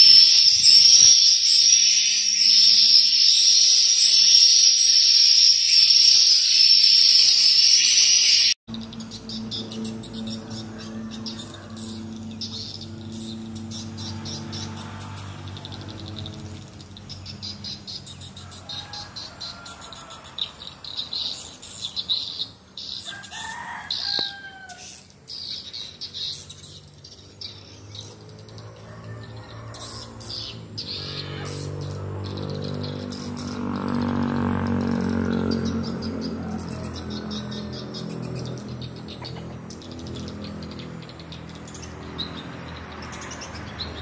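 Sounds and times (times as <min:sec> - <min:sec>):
swiftlets twittering: 0:00.0 - 0:22.5.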